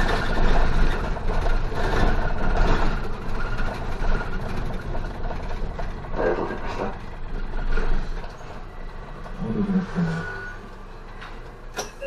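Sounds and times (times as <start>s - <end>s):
bus engine running: 0.0s - 12.0s
road and tyre noise: 0.0s - 12.0s.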